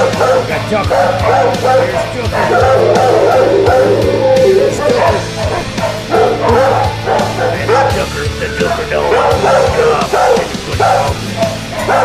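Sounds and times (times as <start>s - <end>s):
many dogs barking and yelping: 0.0s - 12.0s.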